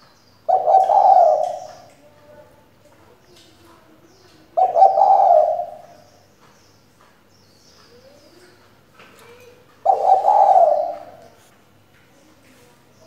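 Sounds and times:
dove cooing: 0.5s - 2.2s, 4.4s - 6.1s, 9.8s - 11.4s.

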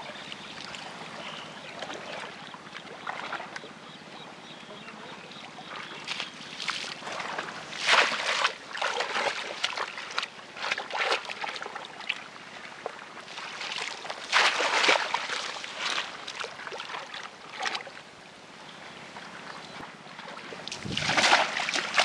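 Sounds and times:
muddy water splashing: 1.8s - 3.7s, 5.7s - 12.2s, 13.3s - 18.0s, 20.2s - 22.0s.

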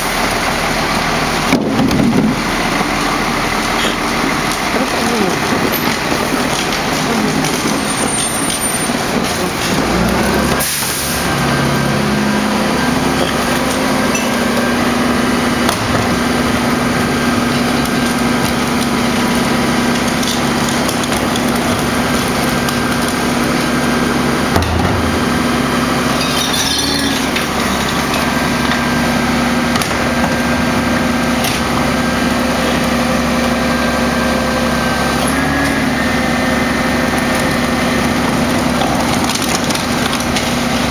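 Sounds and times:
garbage truck diesel engine: 0.0s - 40.9s
carts knocking against hopper: 24.5s - 25.5s.

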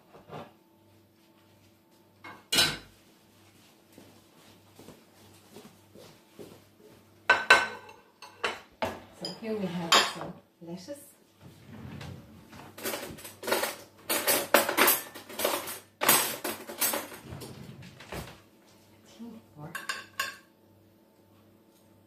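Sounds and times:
cutlery and dishes clattering: 7.3s - 10.4s, 12.7s - 17.5s, 19.8s - 20.5s.

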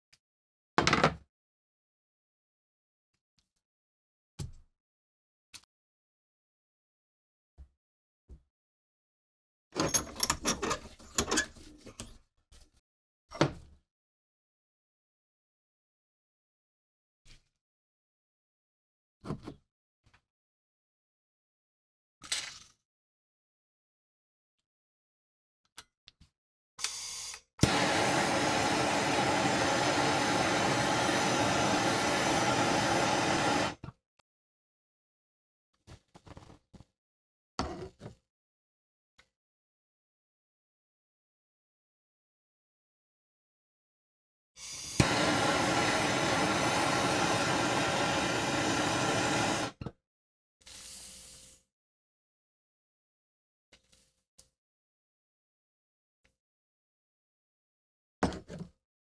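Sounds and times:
gas torch hiss: 27.6s - 33.8s, 44.6s - 49.8s
loud flame hiss: 27.7s - 33.8s, 45.0s - 49.7s.

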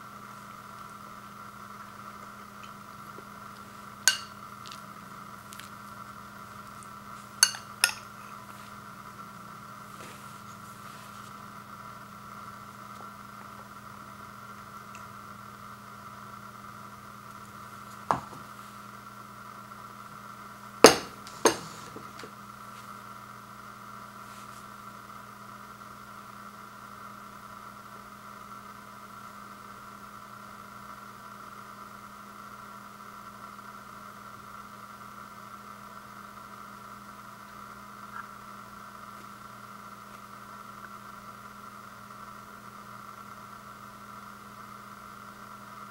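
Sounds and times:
steady low hum: 0.0s - 45.9s
dishes knocking on wooden table: 18.1s - 18.4s, 20.8s - 22.0s.

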